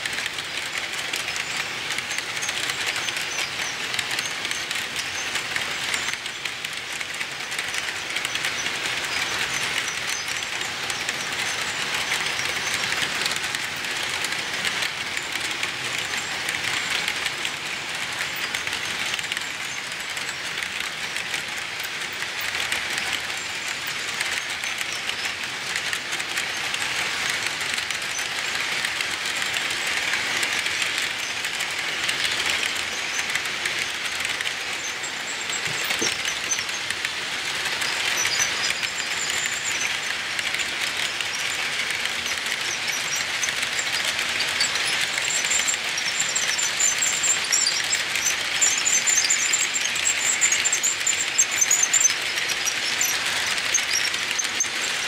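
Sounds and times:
model train wheels rattling: 0:00.0 - 0:55.0.

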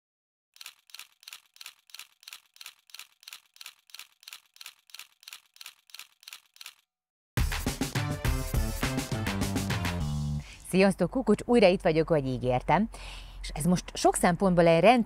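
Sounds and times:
shaker-like rattles: 0:00.6 - 0:06.8.

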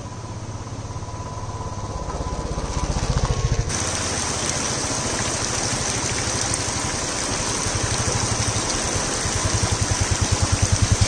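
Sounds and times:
water rushing: 0:03.7 - 0:11.0
motorcycle engine running: 0:07.6 - 0:11.0.

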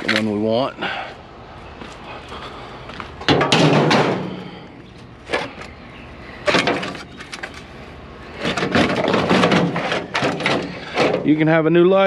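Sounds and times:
metal tracks clanking and rattling: 0:03.3 - 0:04.6, 0:08.4 - 0:11.4.

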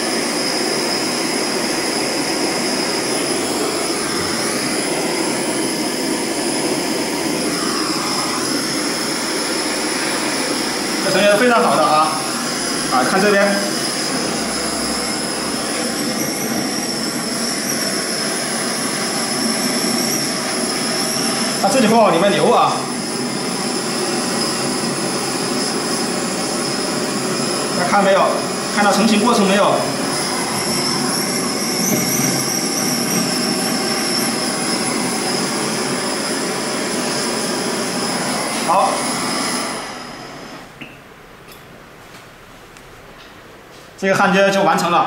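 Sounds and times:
torch flame hissing roar: 0:00.0 - 0:40.8
thin high whine: 0:00.0 - 0:41.7
thin high whistle: 0:13.6 - 0:21.8, 0:29.8 - 0:36.3.

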